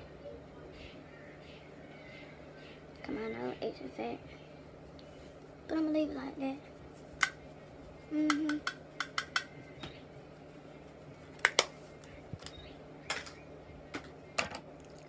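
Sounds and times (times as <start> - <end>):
person humming: 8.1 - 8.7.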